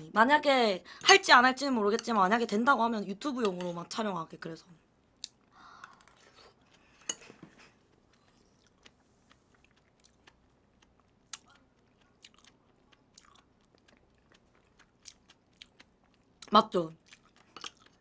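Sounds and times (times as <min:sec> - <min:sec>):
close chewing mouth noises: 0:05.2 - 0:18.0.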